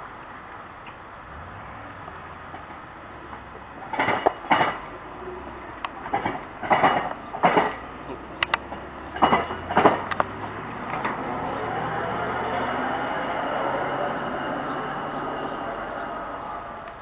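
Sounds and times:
steel wheels clanking over rails: 2.4 - 17.0
truck engine hum: 7.2 - 17.0.

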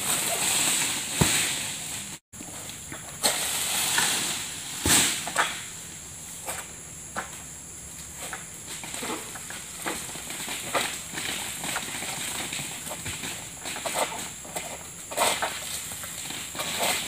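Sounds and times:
palm fronds rustling: 0.0 - 17.0
sickle cracking and knocking: 2.4 - 5.7.

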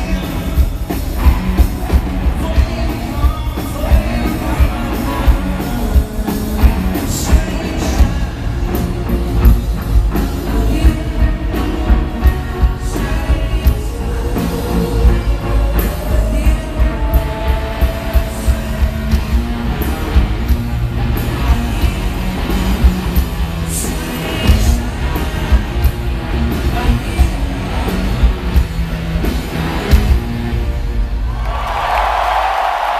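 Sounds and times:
drum kit steady beat: 0.0 - 31.2
electric guitar: 0.0 - 32.9
person singing: 1.9 - 9.2, 10.1 - 19.2.

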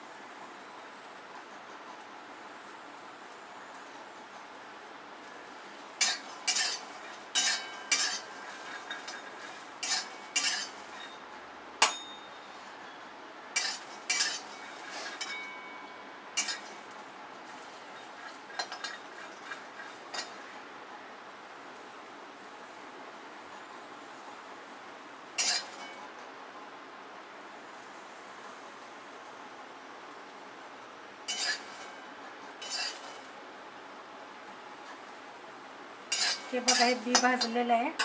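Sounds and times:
metal spatula scraping a wok: 6.0 - 11.2, 13.6 - 15.4, 16.4 - 16.8, 17.5 - 20.4, 25.4 - 26.0, 31.3 - 32.0, 32.6 - 33.3, 36.1 - 38.0.

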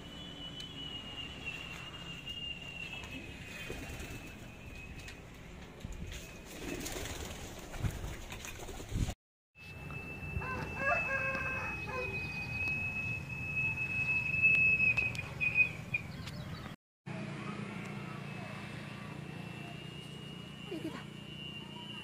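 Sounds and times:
pigeon wings flapping: 3.1 - 5.1, 6.0 - 9.1.

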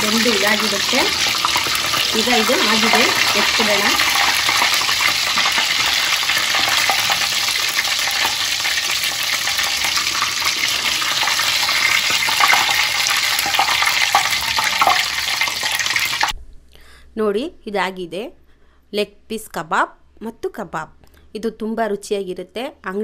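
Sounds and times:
chicken sizzling in hot oil: 0.0 - 16.3
metal spoon stirring oil: 0.0 - 16.3.

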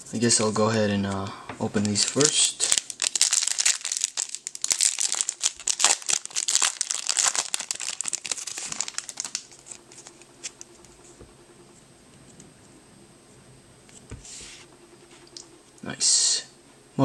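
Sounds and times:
cards ticking: 1.8 - 10.8
foil wrapper crinkling and tearing: 1.8 - 10.8.

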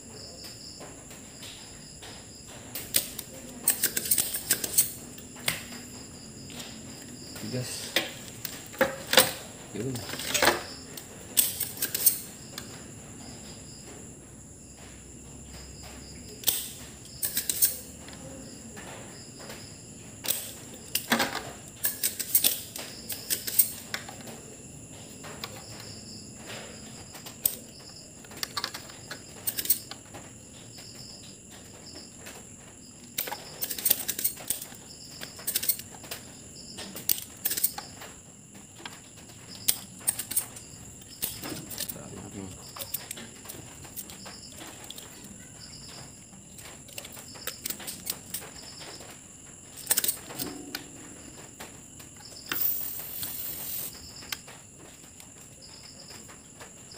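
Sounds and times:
desoldering pump clicks and snaps: 2.8 - 5.8, 10.0 - 12.7, 16.4 - 17.8, 20.2 - 24.2, 28.4 - 30.0, 37.0 - 37.9, 49.8 - 50.8.

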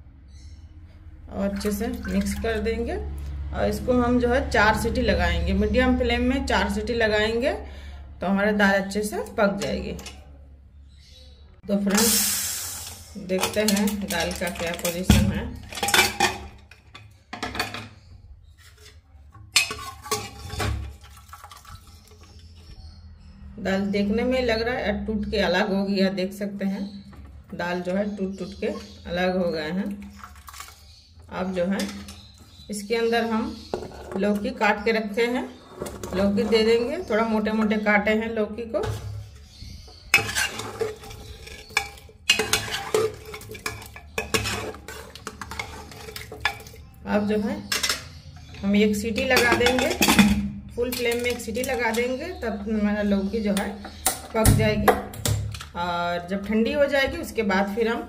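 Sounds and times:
metal ladle scraping pot: 11.8 - 22.9, 26.8 - 55.7
metal pot lid clattering: 13.4 - 17.9, 18.8 - 21.6, 40.1 - 46.8, 47.7 - 48.1, 49.2 - 52.1.

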